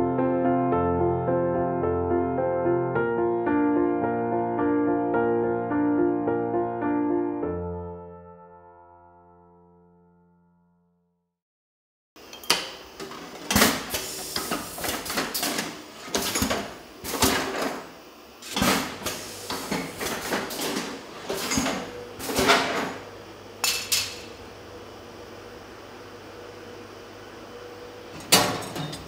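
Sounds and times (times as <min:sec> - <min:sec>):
glass bottles clinking: 0:12.3 - 0:12.8
faint steady hum: 0:23.0 - 0:29.0.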